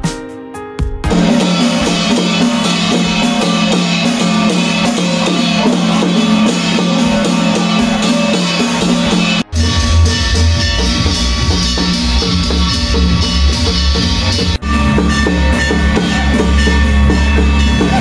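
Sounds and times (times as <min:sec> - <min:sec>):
drums and bass beat: 0:00.0 - 0:18.0
plucked notes: 0:01.1 - 0:18.0.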